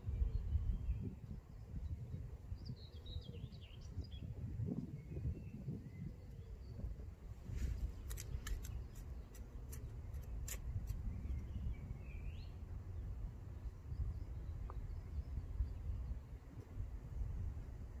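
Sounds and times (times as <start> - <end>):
trowel scraping soil: 7.6 - 11.0.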